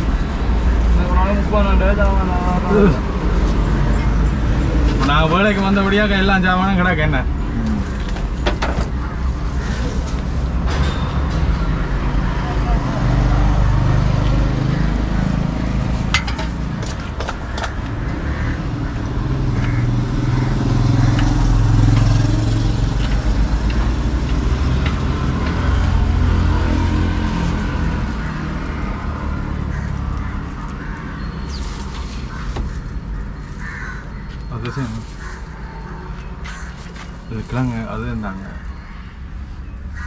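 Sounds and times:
road traffic passing: 0.0 - 40.0.

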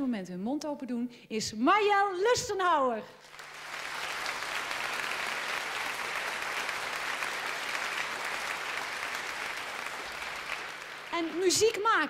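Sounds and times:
audience applauding: 3.2 - 12.0.

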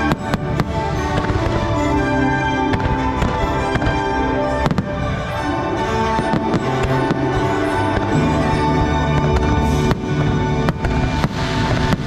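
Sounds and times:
fireworks bursting: 0.0 - 12.0
music with held chords: 0.0 - 12.0
sharp firework bang: 10.7 - 12.0.

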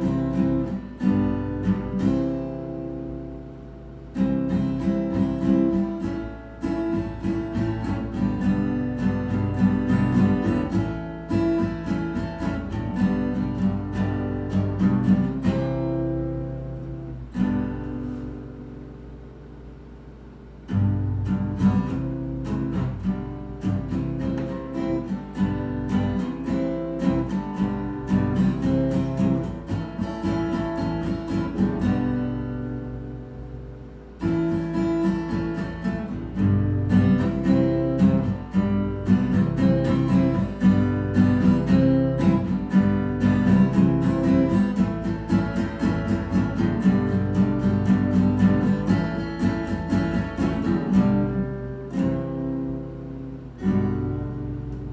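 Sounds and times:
acoustic guitar strumming: 0.0 - 54.9.

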